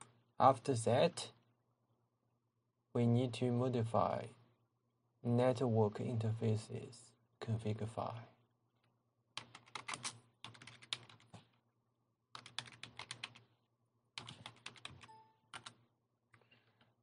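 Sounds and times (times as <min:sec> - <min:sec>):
typing on computer keyboard: 0:09.4 - 0:11.5, 0:12.3 - 0:13.4, 0:14.2 - 0:15.8.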